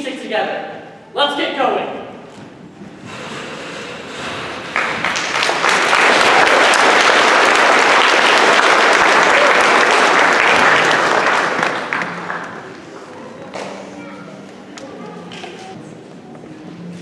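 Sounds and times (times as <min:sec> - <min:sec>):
audience applauding: 0:04.4 - 0:13.2.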